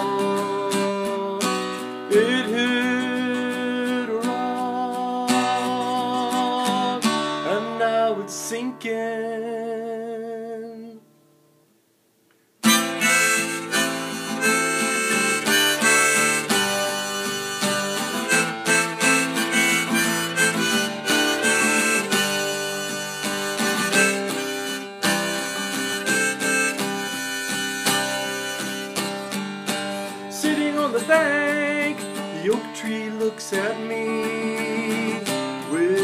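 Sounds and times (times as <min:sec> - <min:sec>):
strummed acoustic guitar: 0:00.0 - 0:11.6, 0:12.6 - 0:36.0
harmonica playing: 0:12.6 - 0:31.0.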